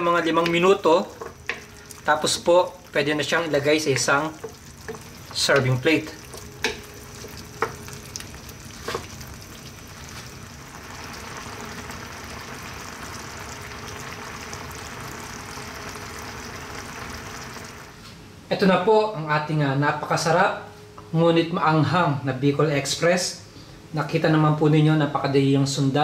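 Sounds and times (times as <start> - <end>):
sauce bubbling: 0.0 - 18.0
wooden spoon knocking on pan: 0.4 - 1.8, 3.8 - 8.0.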